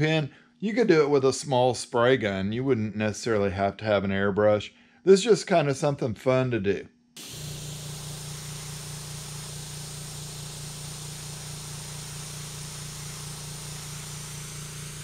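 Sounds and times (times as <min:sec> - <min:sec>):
airbrush spraying hiss: 0:07.2 - 0:15.0
steady low hum: 0:07.2 - 0:15.0.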